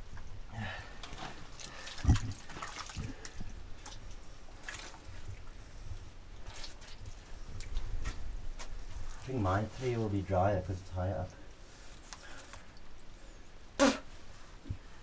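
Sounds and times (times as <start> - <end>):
mud squelching and sloshing: 0.8 - 5.6, 6.4 - 8.3.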